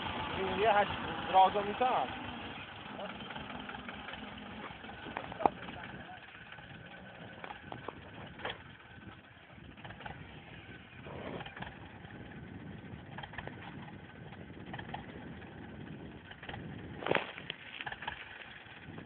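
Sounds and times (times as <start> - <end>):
tractor engine idling: 0.0 - 19.0
knocks and rustles: 16.4 - 18.6.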